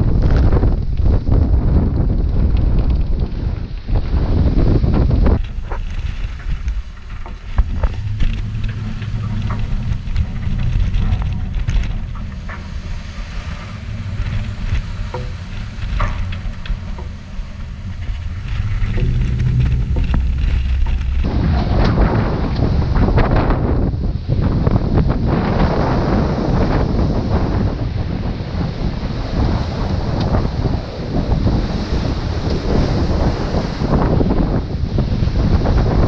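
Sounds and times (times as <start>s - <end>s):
wind buffeting microphone: 0.0s - 36.0s
breaking water: 5.0s - 23.9s, 28.2s - 34.4s.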